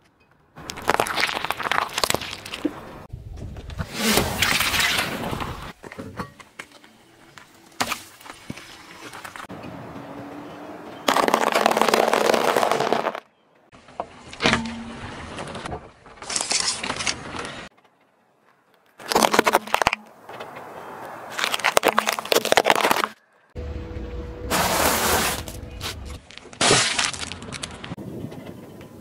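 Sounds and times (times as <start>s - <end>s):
tyre crushing objects crunching: 0.6s - 3.1s, 11.0s - 13.3s, 19.0s - 20.1s, 21.3s - 23.2s, 24.5s - 27.9s
tyre rolling on road: 7.8s - 13.2s.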